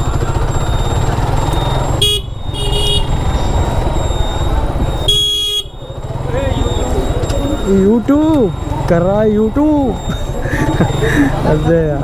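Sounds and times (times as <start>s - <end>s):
motorcycle engine running: 0.0s - 12.0s
vehicle horn honking: 1.9s - 3.3s, 5.0s - 5.8s.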